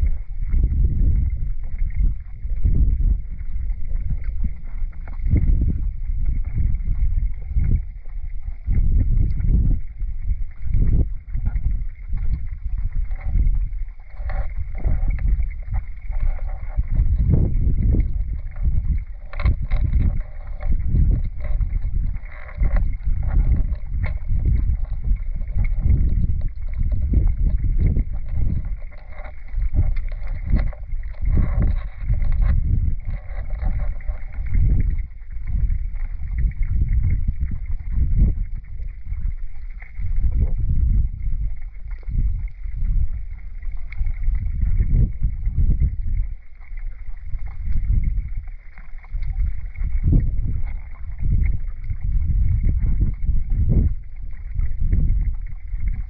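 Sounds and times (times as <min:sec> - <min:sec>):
underwater river rumble: 0:00.0 - 0:56.0
faint scattered clicks: 0:19.2 - 0:20.7.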